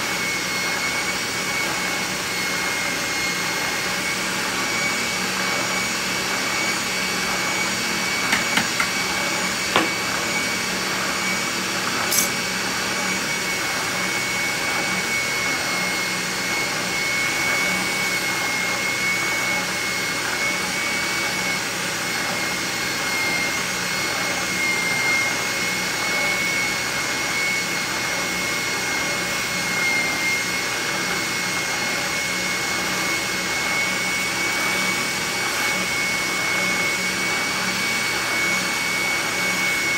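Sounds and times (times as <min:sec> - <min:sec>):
shop vacuum running: 0:00.0 - 0:39.9
spindle sander whining hum: 0:00.0 - 0:39.9
blade clicking on metal table: 0:12.1 - 0:12.3.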